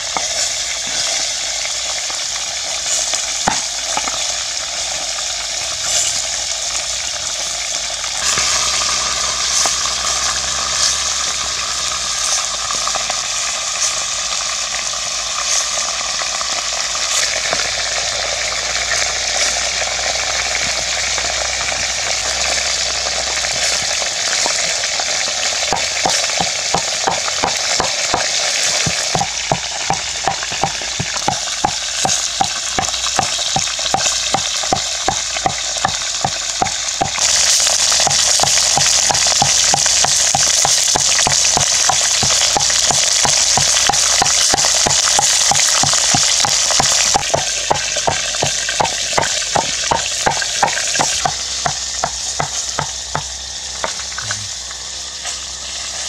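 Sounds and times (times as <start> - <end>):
duck sizzling in metal pot: 0.0 - 56.0
regular knocking: 25.6 - 37.4, 38.0 - 54.2.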